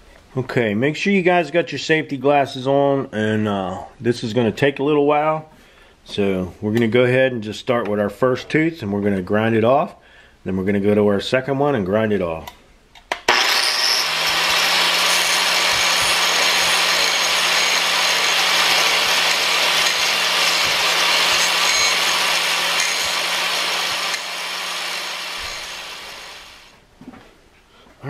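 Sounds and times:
angle grinder grinding steel: 0:13.3 - 0:26.7.

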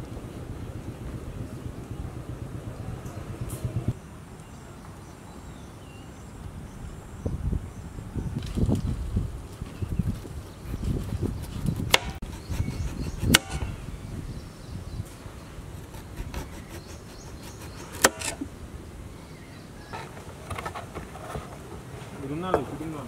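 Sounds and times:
knife slicing potato: 0:15.9 - 0:18.4.

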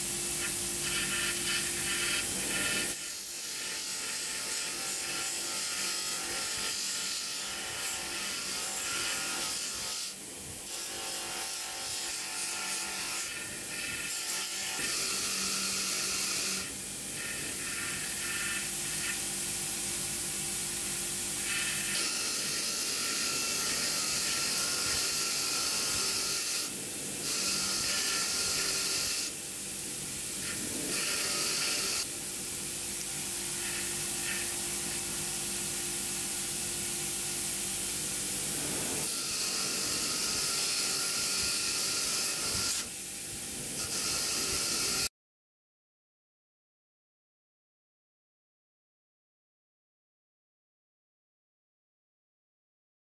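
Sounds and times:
bench grinder motor hum: 0:12.6 - 0:19.2, 0:33.5 - 0:35.4.

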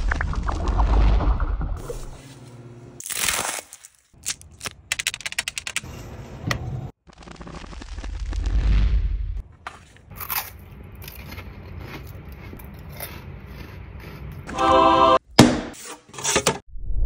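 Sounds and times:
low rumble: 0:00.0 - 0:02.2.

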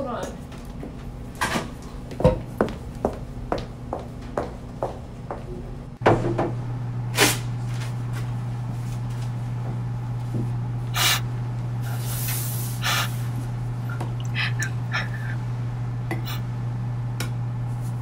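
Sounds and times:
steady low hum: 0:00.0 - 0:18.0
short hissing sounds: 0:10.9 - 0:13.3.

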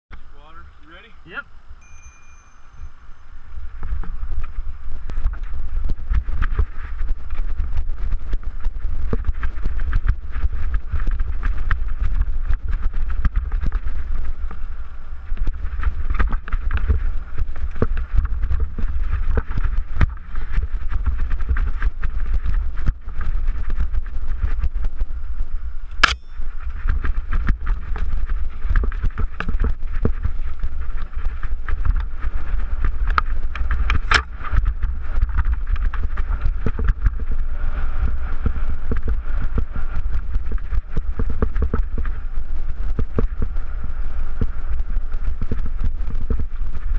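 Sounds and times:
wind rushing over microphone: 0:00.2 - 0:46.9
bike rattling over rocks: 0:03.8 - 0:25.0, 0:26.4 - 0:46.9
sharp crack: 0:25.9 - 0:26.4.

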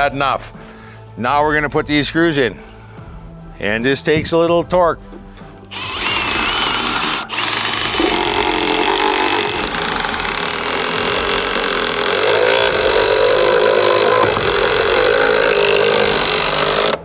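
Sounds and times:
impact driver driving screw: 0:05.7 - 0:17.0.

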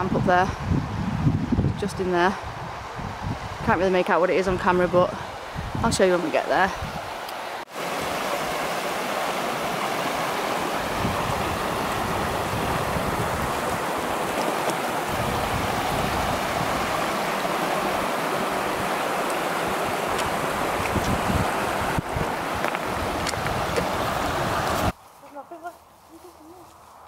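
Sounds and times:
river rushing over stones: 0:05.3 - 0:25.0.

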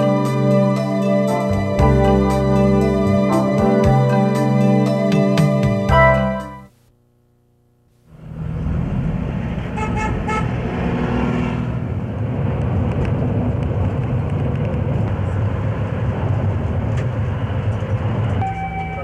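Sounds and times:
engine and road rumble: 0:00.0 - 0:06.3, 0:08.0 - 0:19.0
car horn toots: 0:09.7 - 0:10.6.

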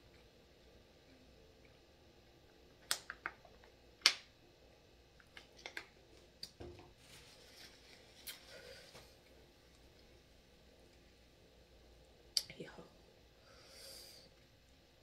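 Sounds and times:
paper napkin rustling: 0:07.0 - 0:09.2.

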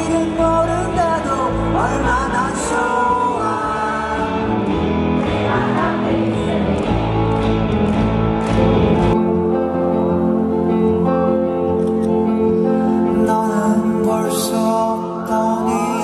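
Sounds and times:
man singing into a microphone: 0:00.0 - 0:04.5, 0:12.6 - 0:16.0
live band music: 0:00.0 - 0:16.0.

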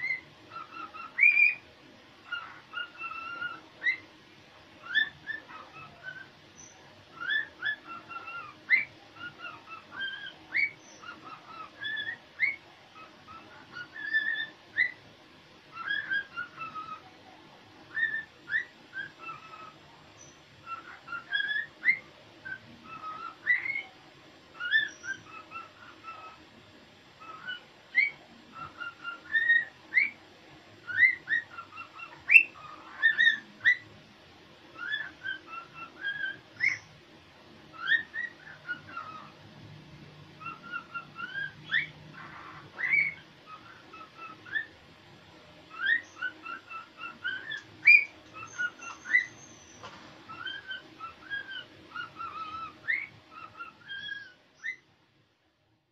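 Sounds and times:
cockatiel whistling: 0:00.0 - 0:01.6, 0:02.2 - 0:04.1, 0:04.8 - 0:15.0, 0:15.7 - 0:17.1, 0:17.9 - 0:26.4, 0:27.2 - 0:30.2, 0:30.8 - 0:33.9, 0:34.7 - 0:36.9, 0:37.7 - 0:39.4, 0:40.4 - 0:44.8, 0:45.7 - 0:54.9.

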